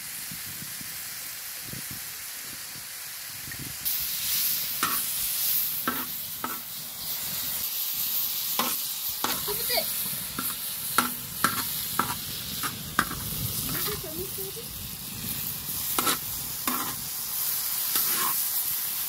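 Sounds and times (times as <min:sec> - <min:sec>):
vegetables sizzling in pan: 0:00.0 - 0:19.0
metal spatula scraping pan: 0:05.9 - 0:06.6, 0:08.6 - 0:09.5, 0:10.4 - 0:14.1, 0:15.9 - 0:17.0, 0:17.9 - 0:18.4.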